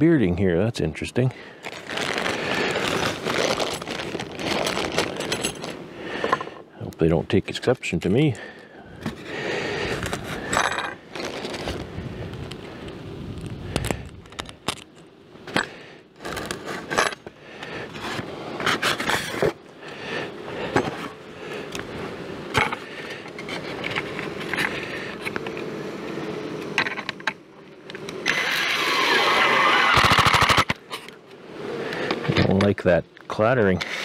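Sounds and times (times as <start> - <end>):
clicks and rustling of screws: 2.7 - 6.6, 10.0 - 11.8, 13.4 - 17.3
impact driver driving screw: 28.2 - 30.8.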